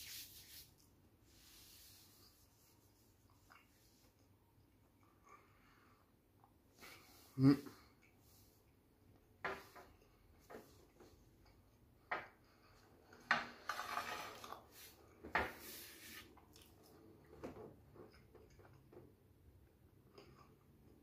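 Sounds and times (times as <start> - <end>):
plate scraping across glass: 13.6 - 15.0.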